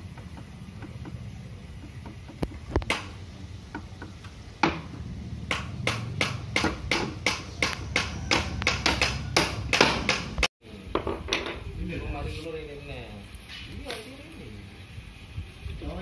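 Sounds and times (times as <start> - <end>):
hammer blows on wood: 5.5 - 10.5.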